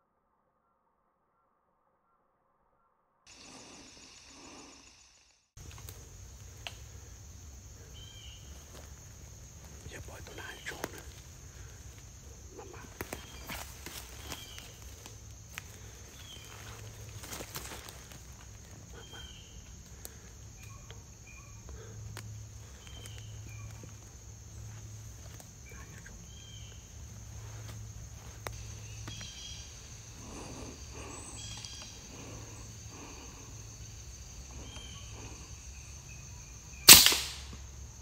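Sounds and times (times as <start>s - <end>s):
high insect drone: 3.3s - 38.0s
bird chirps: 28.6s - 32.7s
air rifle shot: 36.9s - 37.6s.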